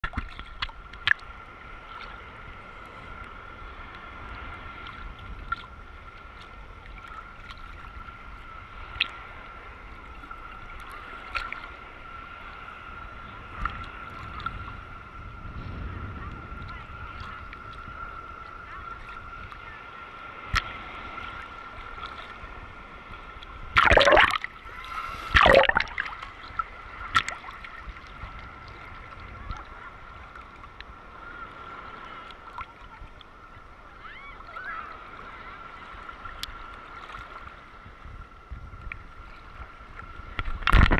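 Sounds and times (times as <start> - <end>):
water clicks: 0.0 - 1.3, 23.4 - 24.5, 25.3 - 27.6, 40.4 - 40.9
water sloshing: 23.4 - 28.8
loud splashes: 23.8 - 24.5, 25.1 - 26.2.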